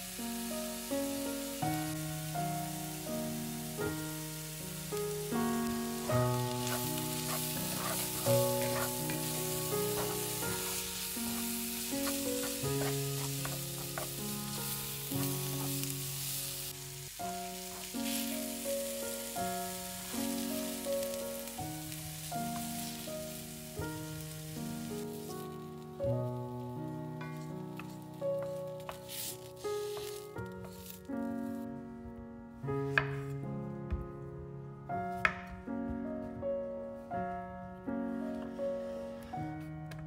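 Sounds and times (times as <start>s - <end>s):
food sizzling in oil: 0.0s - 26.0s, 26.7s - 31.1s
instrumental melody: 0.0s - 40.0s.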